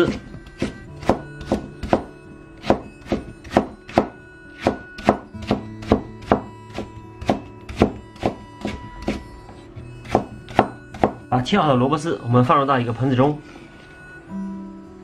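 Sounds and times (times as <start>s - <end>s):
knife chopping on wooden board: 0.0s - 9.3s, 10.0s - 11.2s
soft background music: 0.0s - 15.0s.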